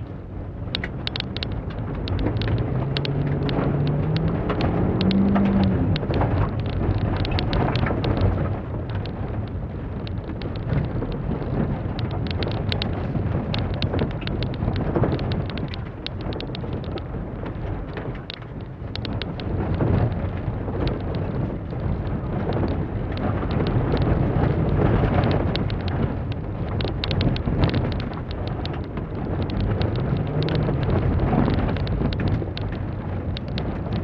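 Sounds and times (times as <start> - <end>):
gravel clattering on car underside: 0.0 - 34.0
tyres rumbling on loose surface: 0.8 - 34.0
car engine revving: 0.9 - 8.4.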